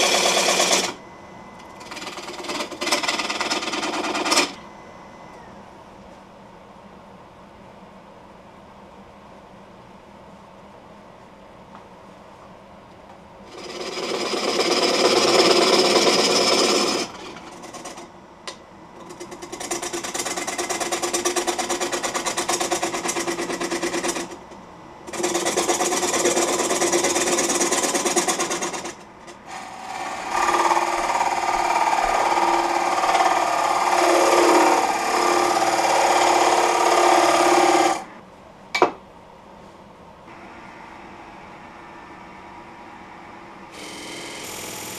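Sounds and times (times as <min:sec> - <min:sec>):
lathe running: 0:00.0 - 0:05.6, 0:13.5 - 0:18.0, 0:25.0 - 0:38.1, 0:40.3 - 0:44.9
gouge cutting wood on lathe: 0:29.5 - 0:38.0, 0:43.8 - 0:44.9.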